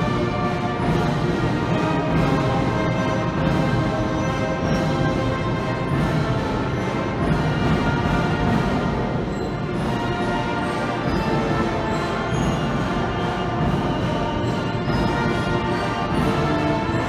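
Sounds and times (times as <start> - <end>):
brass chords: 0.0 - 17.0.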